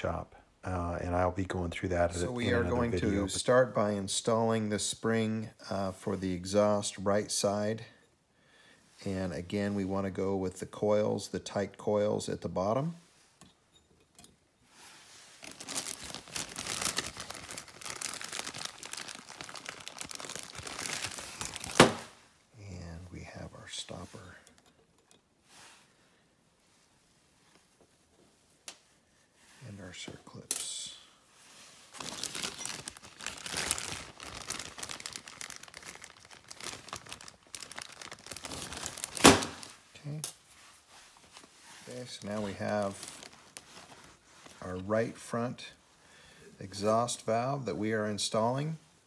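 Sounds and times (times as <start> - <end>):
plastic bag crinkling: 15.4 - 22.2, 31.9 - 39.8, 41.2 - 44.8.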